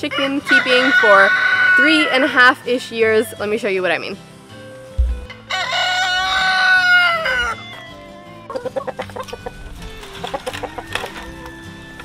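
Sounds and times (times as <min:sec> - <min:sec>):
rooster crowing: 0:00.4 - 0:02.3, 0:05.5 - 0:08.4
chickens clucking: 0:06.1 - 0:11.5.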